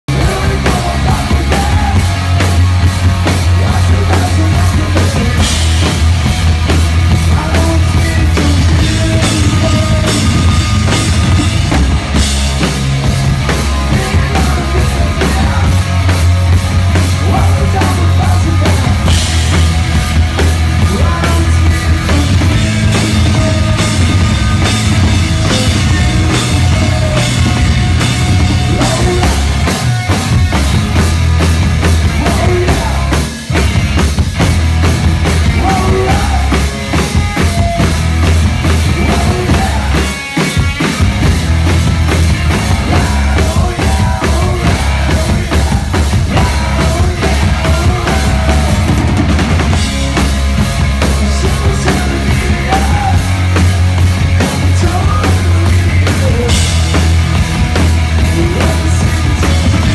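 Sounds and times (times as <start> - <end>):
person singing: 0.1 - 2.6, 3.2 - 5.7, 7.2 - 11.6, 13.4 - 16.2, 17.0 - 19.3, 20.8 - 30.6, 32.1 - 33.4, 35.4 - 37.5, 38.7 - 40.6, 42.5 - 50.4, 51.0 - 53.6, 54.4 - 57.1, 58.2 - 59.9
drums and cymbals pounding: 0.1 - 59.9
live rock band playing: 0.1 - 59.9.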